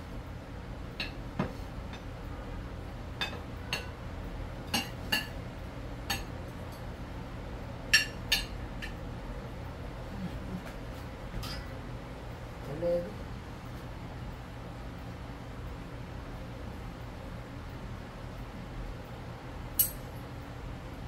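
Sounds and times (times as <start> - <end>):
metal spoon clinking on plates: 8.0 - 9.0, 11.4 - 11.7, 19.8 - 20.0.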